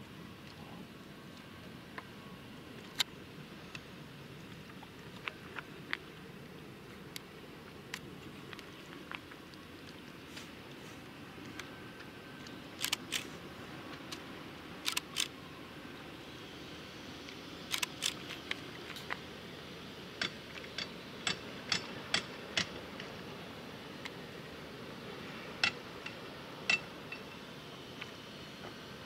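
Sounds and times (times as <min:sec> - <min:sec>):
sharp clicks: 0:17.7 - 0:19.2.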